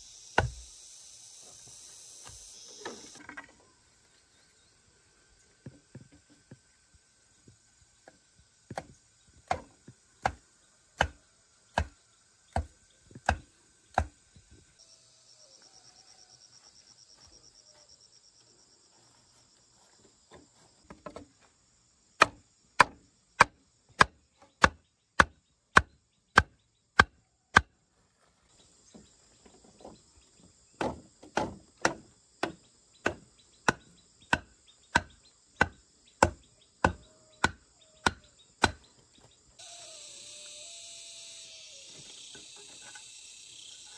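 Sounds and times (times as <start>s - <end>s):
wooden club knocking stake: 0.4s - 0.6s, 11.8s - 12.0s, 30.8s - 38.8s.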